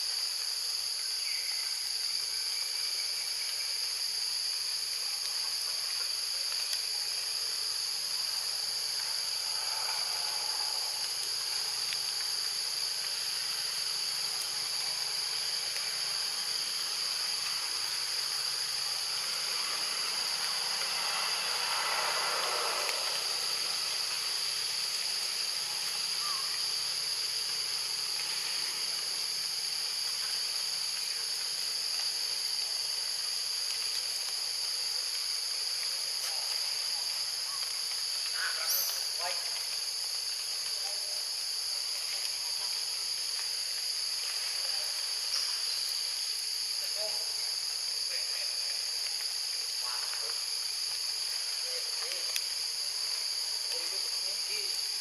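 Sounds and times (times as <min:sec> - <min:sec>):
high-pitched insect chorus: 0:00.0 - 0:55.0.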